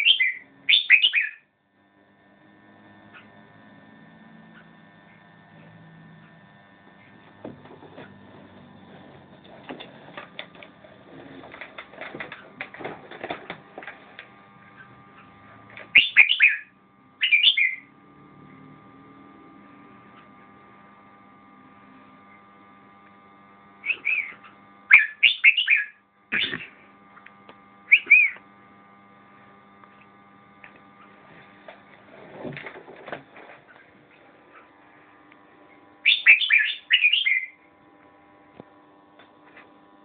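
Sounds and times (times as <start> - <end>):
bird singing warbling phrases: 0.0 - 1.4, 16.0 - 17.9, 23.8 - 26.6, 27.9 - 28.4, 36.1 - 37.6
electrical hum: 0.0 - 40.0.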